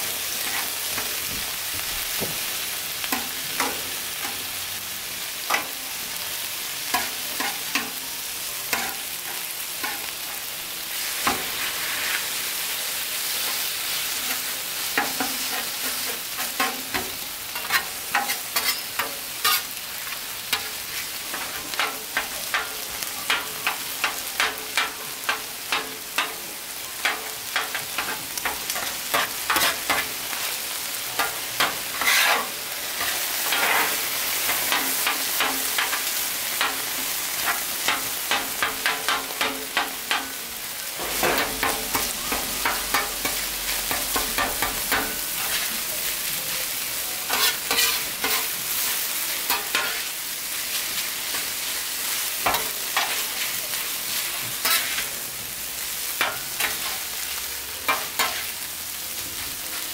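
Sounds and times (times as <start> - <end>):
meat sizzling on griddle: 0.0 - 59.9
metal spatula clacking on griddle: 15.0 - 19.7, 21.3 - 26.4, 27.0 - 30.1, 31.2 - 40.4, 41.0 - 45.6, 47.3 - 48.5, 49.5 - 50.0, 56.2 - 57.0.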